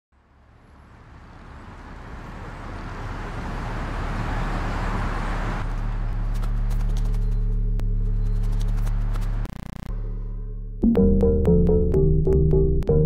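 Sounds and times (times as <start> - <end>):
low pitched drone: 7.0 - 12.2.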